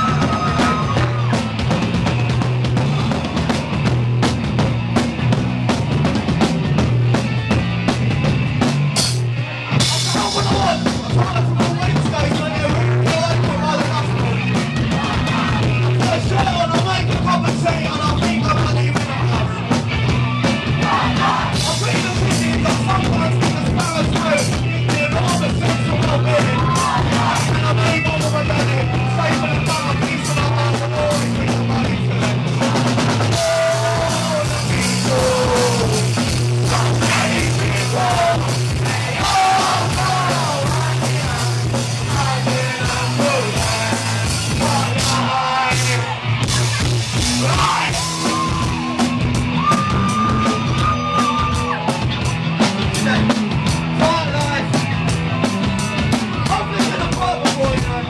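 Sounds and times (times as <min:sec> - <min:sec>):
person singing and yelling: 0:00.0 - 0:01.4, 0:20.4 - 0:52.3
drum kit: 0:00.0 - 0:58.0.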